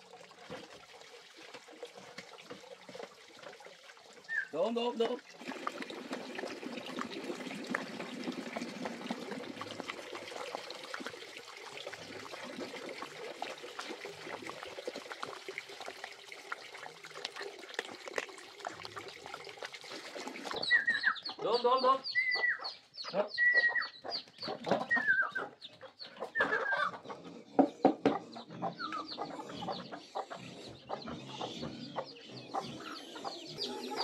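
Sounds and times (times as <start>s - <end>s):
dogs lapping and chewing: 0.0s - 21.3s.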